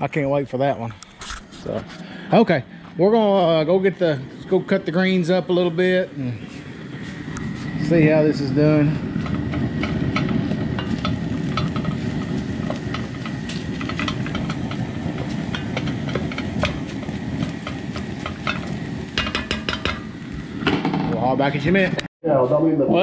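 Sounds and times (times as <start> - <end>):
low rumble: 0.9 - 22.1
wooden spoon scraping pot: 9.0 - 21.0.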